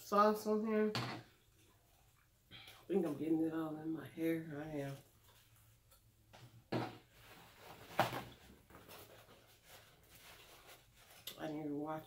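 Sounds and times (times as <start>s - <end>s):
paper towel rustling: 7.1s - 11.8s.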